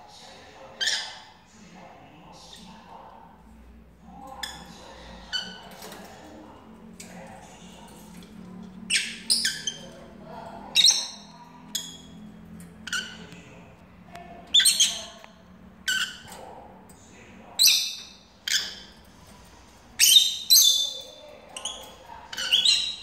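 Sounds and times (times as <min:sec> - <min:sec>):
lovebirds calling: 0:08.8 - 0:13.6, 0:14.4 - 0:16.7, 0:17.4 - 0:19.1, 0:19.9 - 0:23.0.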